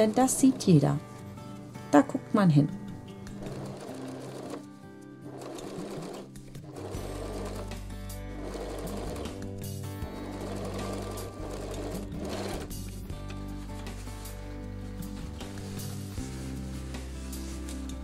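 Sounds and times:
sewing machine stitching: 0.0s - 0.8s, 3.3s - 4.7s, 5.3s - 7.8s, 8.4s - 9.4s, 10.0s - 12.8s
background music: 0.0s - 18.0s.

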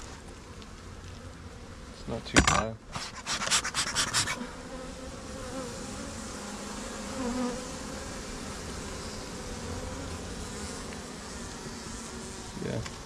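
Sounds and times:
bees humming: 3.9s - 13.0s.

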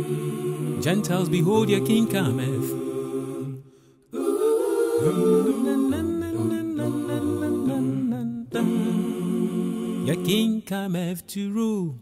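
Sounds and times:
voices humming chords: 0.0s - 3.5s.

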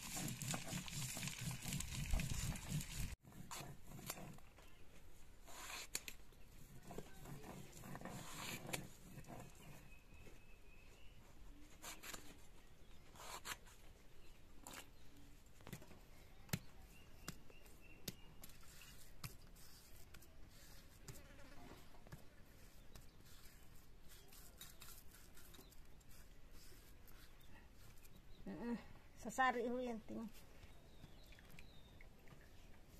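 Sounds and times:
grinding stone on stone slab: 0.0s - 4.3s.

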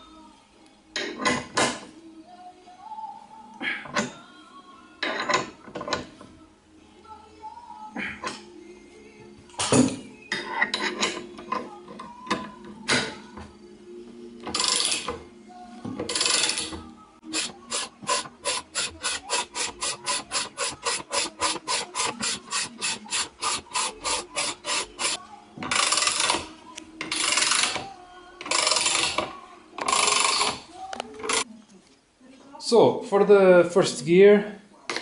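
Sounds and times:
ratchet wrench clicking: 14.5s - 15.1s, 16.1s - 16.7s, 17.3s - 27.8s, 28.4s - 29.2s, 29.8s - 30.6s.

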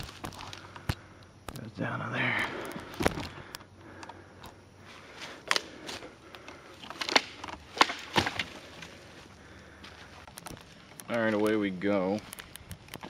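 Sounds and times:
twigs snapping underfoot: 0.0s - 1.7s, 5.2s - 13.0s.

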